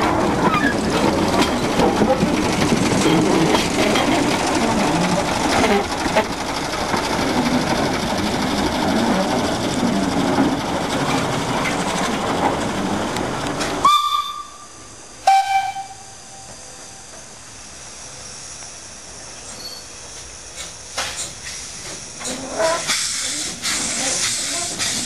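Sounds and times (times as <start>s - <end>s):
diesel locomotive engine clattering: 0.0s - 25.0s
steam whistle toots: 13.8s - 17.1s.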